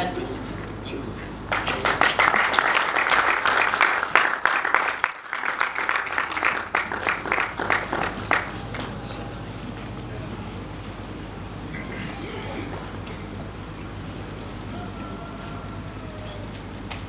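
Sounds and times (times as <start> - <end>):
audience applauding: 1.4 - 10.1.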